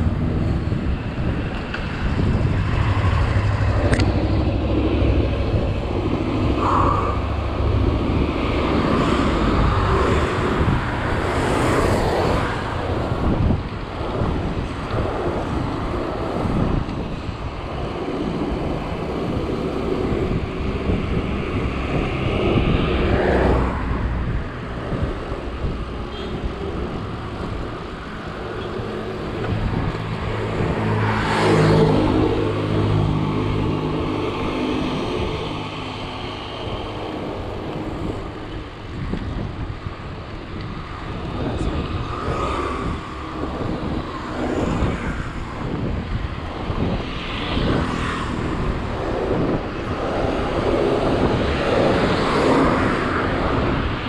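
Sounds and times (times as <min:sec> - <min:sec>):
motor vehicles passing: 0:00.0 - 0:54.0
road noise: 0:00.0 - 0:54.0
wind rumbling on microphone: 0:00.0 - 0:54.0.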